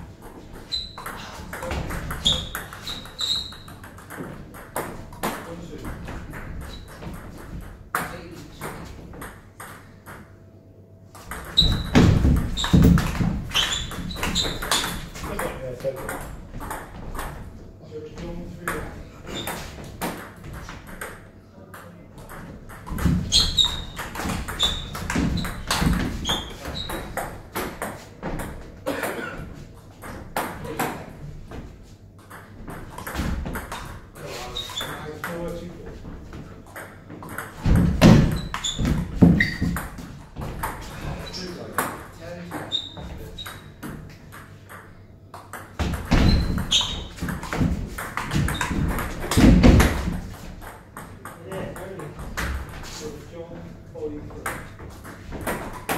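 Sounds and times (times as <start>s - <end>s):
short squeaks: 0.7s - 1.4s, 2.1s - 3.8s, 11.4s - 12.8s, 13.5s - 15.0s, 19.3s - 19.6s, 23.3s - 27.2s, 34.4s - 35.0s, 38.3s - 39.8s, 42.7s - 43.8s, 46.1s - 47.2s
low thumps of players moving: 11.3s - 15.4s.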